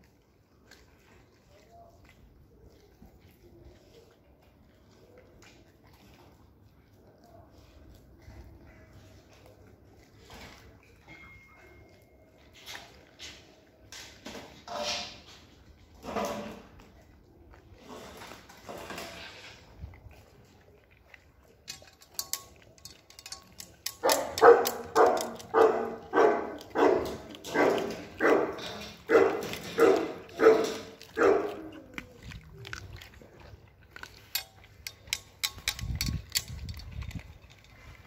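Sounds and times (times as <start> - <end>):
faint clicks and ticks: 20.0 - 38.0
dog barking: 24.0 - 31.7.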